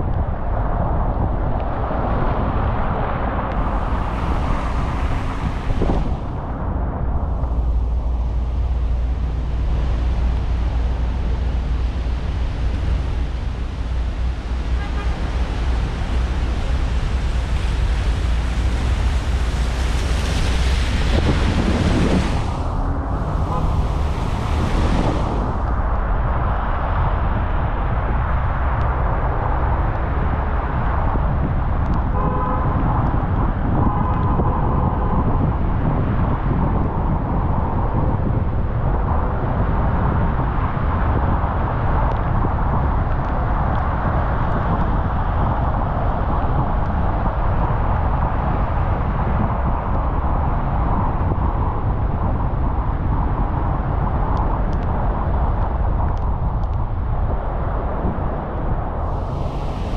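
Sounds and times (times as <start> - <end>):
car driving on wet road in rain: 0.0 - 59.9
car horn: 14.6 - 15.9, 23.4 - 23.9, 32.2 - 32.7.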